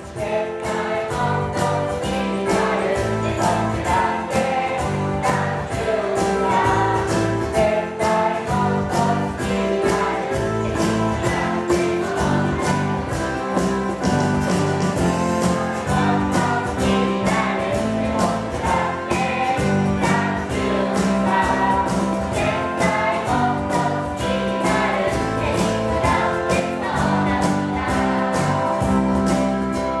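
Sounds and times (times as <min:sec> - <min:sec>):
hand clapping on a beat: 0:00.0 - 0:13.0
group singing: 0:00.0 - 0:14.1, 0:15.0 - 0:29.5
instrumental accompaniment: 0:00.0 - 0:30.0.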